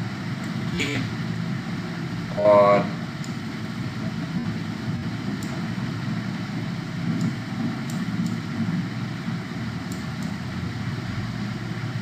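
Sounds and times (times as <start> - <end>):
low background rumble: 0.0 - 12.0
faint light ticks: 7.1 - 8.4, 9.8 - 10.4.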